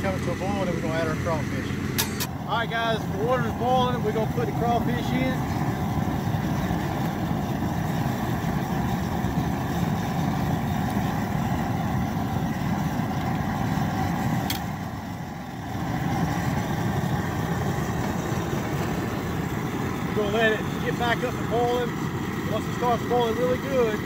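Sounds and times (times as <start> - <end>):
gas burner rushing: 0.0 - 24.0.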